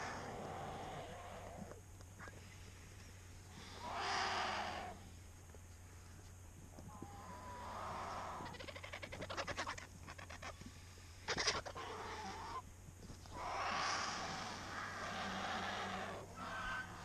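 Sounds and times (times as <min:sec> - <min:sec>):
long harsh hiss: 0:03.4 - 0:06.2
vultures rattling chatter: 0:07.6 - 0:10.6, 0:11.3 - 0:12.6.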